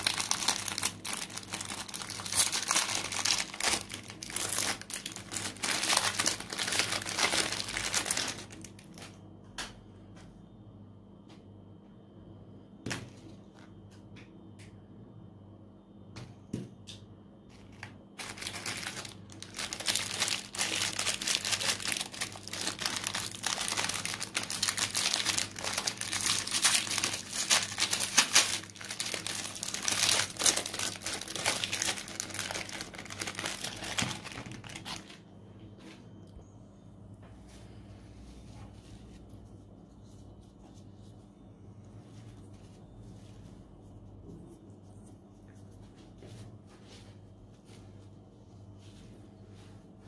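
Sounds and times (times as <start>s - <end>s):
foil wrapper crinkling: 0.0s - 9.2s, 17.8s - 35.2s.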